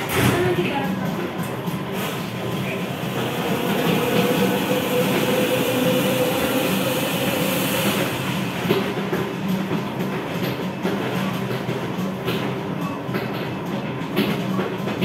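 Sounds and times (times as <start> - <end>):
low machine hum: 0.0 - 10.8.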